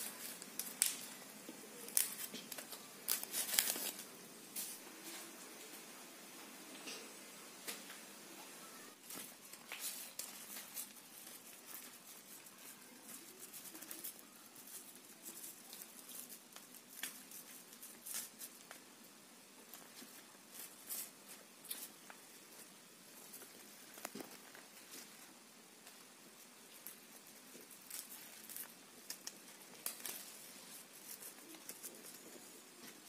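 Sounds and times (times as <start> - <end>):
leaves crackling and rustling: 0.0 - 5.8, 8.9 - 18.9, 19.6 - 33.0.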